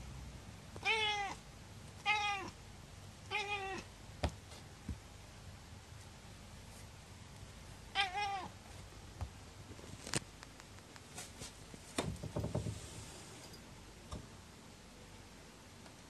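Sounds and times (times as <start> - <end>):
cat meowing: 0.8 - 1.4, 2.0 - 2.6, 3.3 - 3.9, 7.9 - 8.6.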